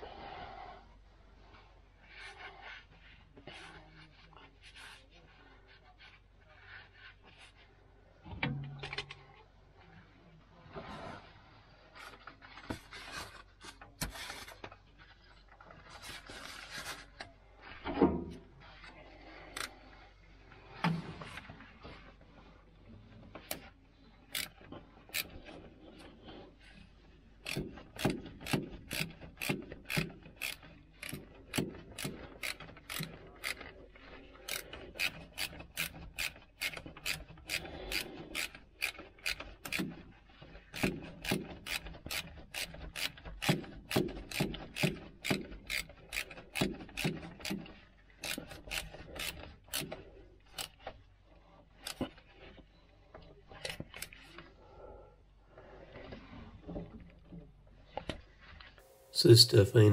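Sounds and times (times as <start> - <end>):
ratchet wrench clicking: 27.4 - 31.2, 32.0 - 33.7, 34.5 - 39.8, 40.8 - 47.6.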